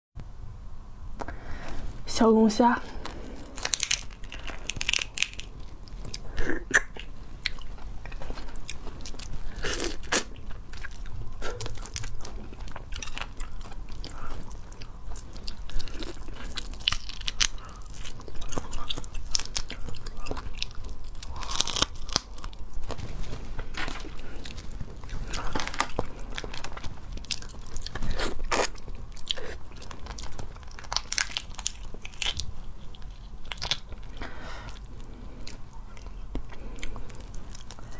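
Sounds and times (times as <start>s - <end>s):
shells cracking and snapping: 3.0s - 23.0s, 25.2s - 34.9s
biting and chewing: 3.0s - 37.9s.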